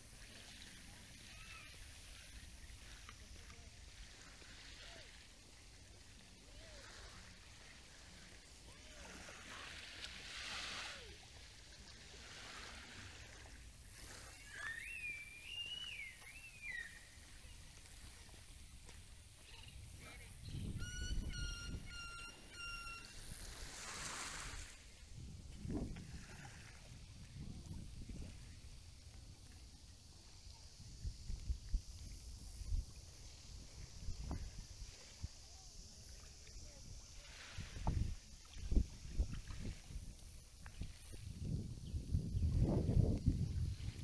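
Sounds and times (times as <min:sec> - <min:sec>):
small waves washing onto beach: 0:00.0 - 0:20.4, 0:22.3 - 0:44.0
bird calling: 0:14.3 - 0:17.2, 0:20.4 - 0:23.2.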